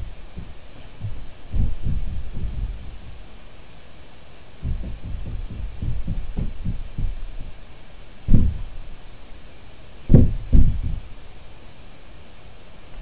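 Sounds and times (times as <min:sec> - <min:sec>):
low dull thuds: 0:00.0 - 0:03.3, 0:04.6 - 0:07.6, 0:08.2 - 0:09.0, 0:10.1 - 0:11.1.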